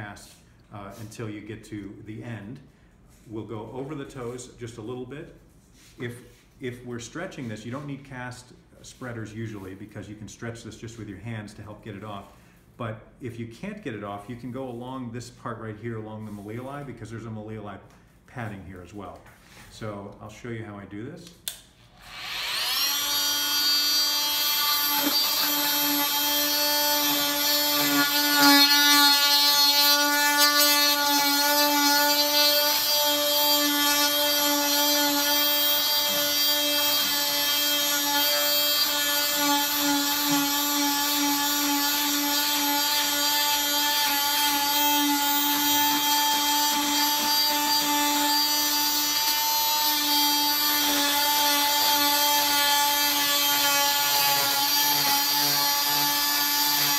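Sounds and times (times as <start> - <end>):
cast saw whining: 21.9 - 56.9.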